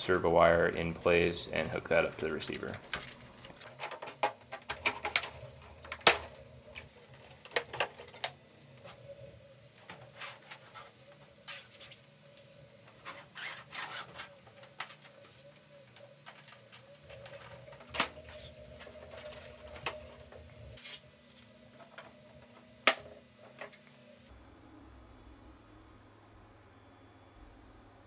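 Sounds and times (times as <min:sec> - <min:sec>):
faint steady hum: 0:00.0 - 0:28.0
plastic parts clicking and rubbing: 0:01.0 - 0:09.0, 0:12.8 - 0:21.0.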